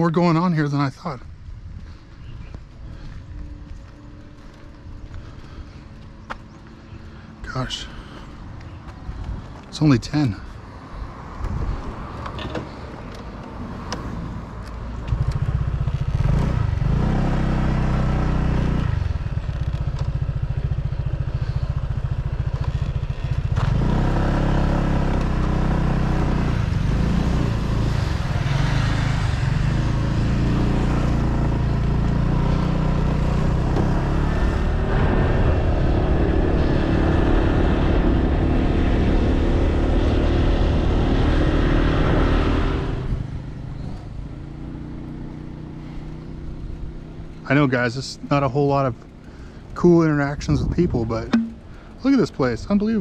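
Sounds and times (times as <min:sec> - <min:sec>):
motorbike engine: 0:15.0 - 0:52.1.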